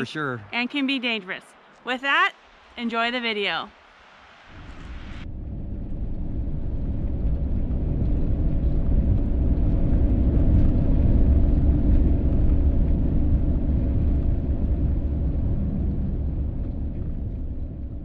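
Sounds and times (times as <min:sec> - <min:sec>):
vehicle engine and tyres rumble: 0:03.7 - 0:18.0.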